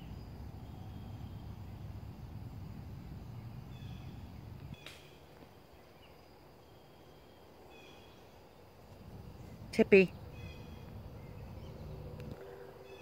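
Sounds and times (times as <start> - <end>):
single click: 4.8 - 5.1.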